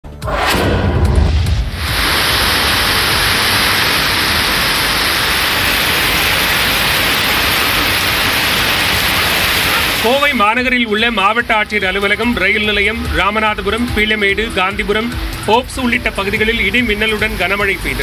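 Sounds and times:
low thump: 0.2s - 2.0s
heavy rain pouring: 1.7s - 18.0s.

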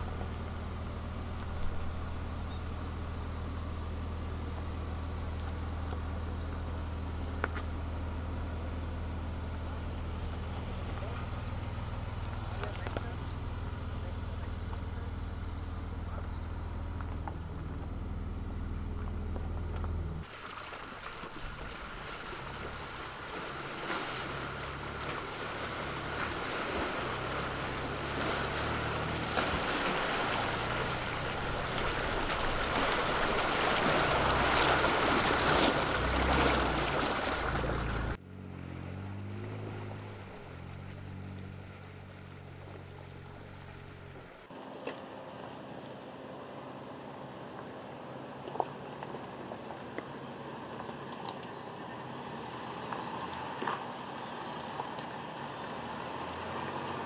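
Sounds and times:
truck engine running: 0.0s - 20.3s, 21.1s - 57.0s
water splashing: 20.2s - 38.2s.

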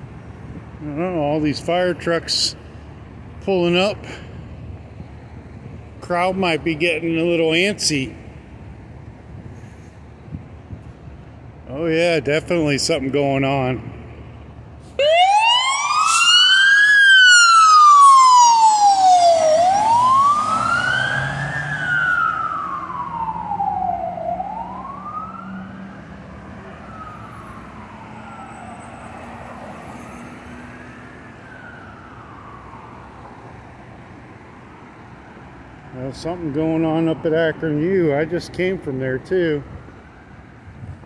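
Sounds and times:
fire truck siren wailing: 14.8s - 35.4s.

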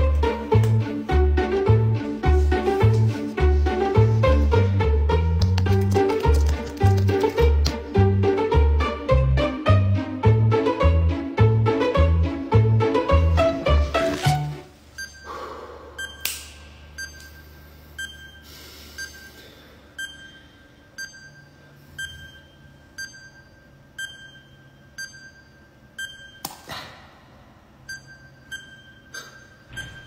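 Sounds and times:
clock ticking with high tone: 15.0s - 26.5s, 27.7s - 30.0s.

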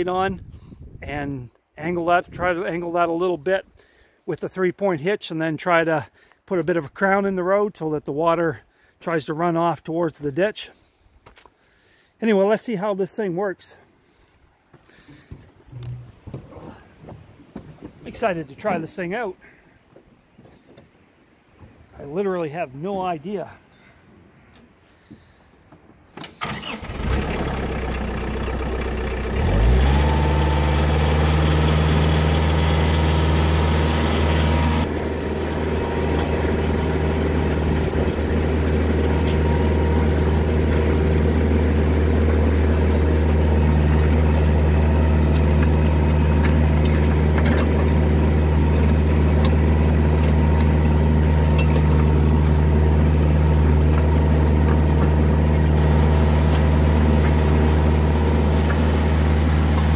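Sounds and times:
diesel tractor engine revving: 26.4s - 59.9s.

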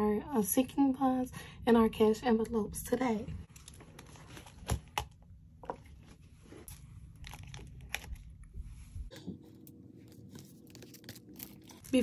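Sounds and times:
plastic pouch clicks and crinkles: 6.7s - 8.4s.

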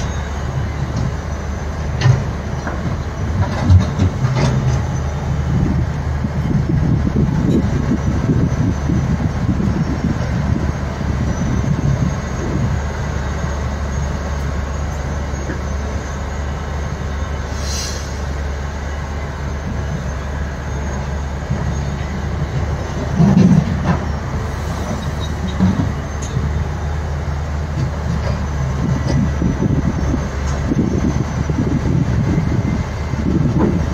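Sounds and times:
diesel engines droning: 0.0s - 33.9s
short hiss: 17.5s - 18.2s.

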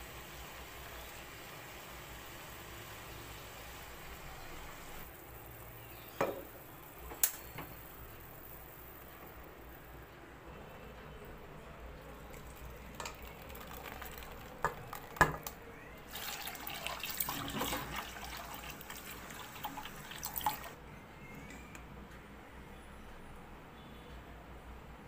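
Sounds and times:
water splashing through strainer: 12.3s - 15.4s, 16.1s - 20.8s.

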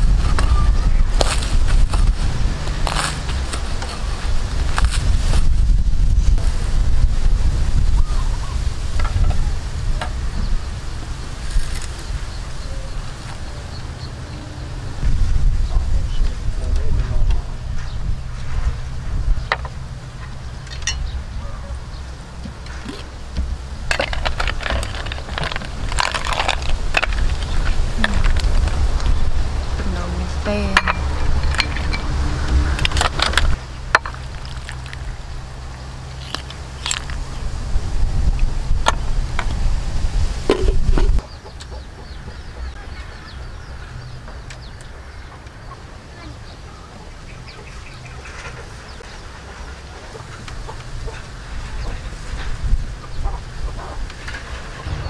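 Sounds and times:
steady low rumble: 0.0s - 55.0s
small birds chirping: 7.8s - 31.9s, 41.1s - 55.0s
bird ticking calls: 41.2s - 52.1s.

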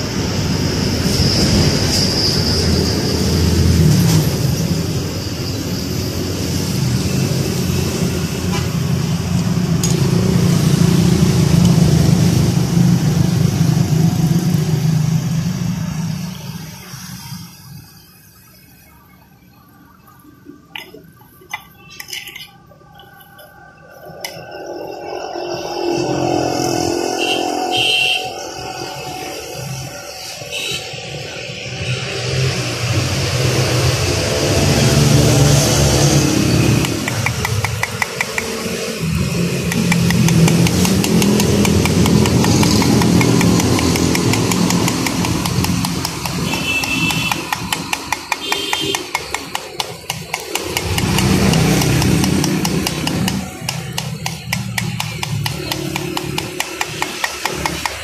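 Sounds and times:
engine running: 0.0s - 18.1s, 20.5s - 58.0s
fast even ticking: 36.4s - 58.0s.

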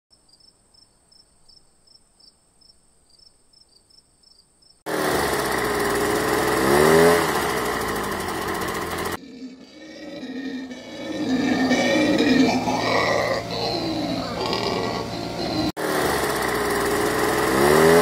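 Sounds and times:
leaf blower blowing: 4.9s - 9.6s, 10.3s - 18.0s
regular chirps: 9.2s - 15.7s.

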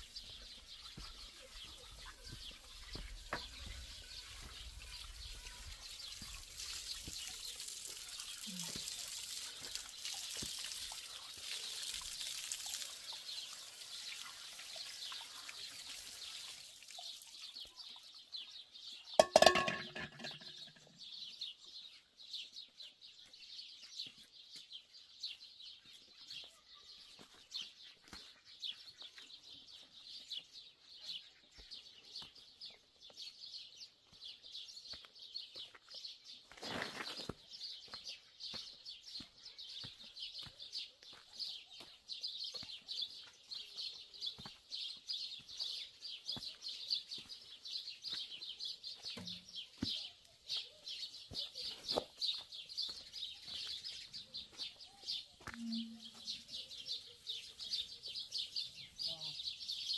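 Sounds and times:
small birds chirping: 0.0s - 59.9s
tap water splashing into trough: 6.1s - 17.2s, 19.2s - 20.9s.

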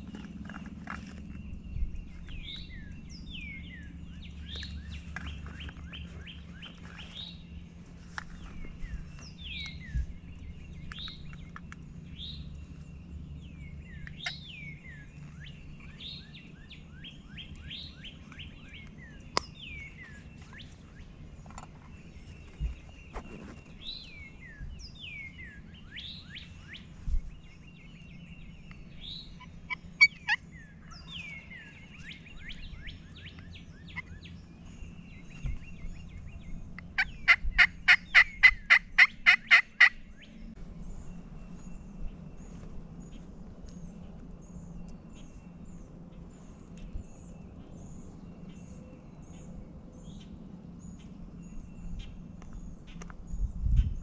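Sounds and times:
songbirds singing: 0.0s - 54.0s
turkey yelps: 37.0s - 40.0s.

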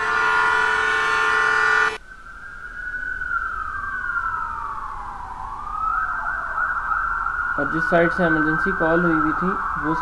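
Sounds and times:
loud horn-like blast: 0.0s - 2.0s
siren wail falling: 0.0s - 10.0s.

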